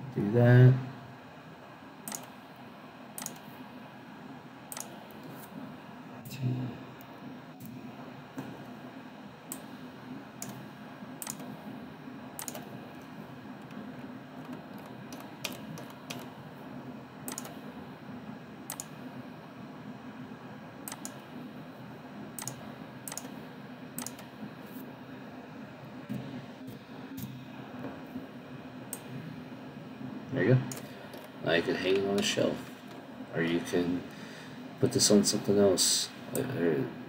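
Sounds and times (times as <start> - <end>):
steady low hum: 0.0 - 37.0
mouse and keyboard clicks: 2.1 - 2.3, 3.2 - 3.5, 4.7 - 4.9, 11.2 - 11.5, 12.4 - 12.7, 14.4 - 16.3, 17.3 - 17.6, 18.7 - 18.9, 20.9 - 21.2, 22.4 - 23.3, 24.0 - 24.3.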